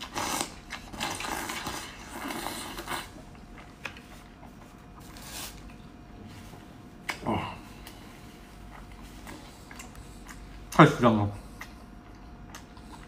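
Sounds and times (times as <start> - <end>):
chewing with mouth clicks: 0.0 - 5.9, 8.6 - 13.0.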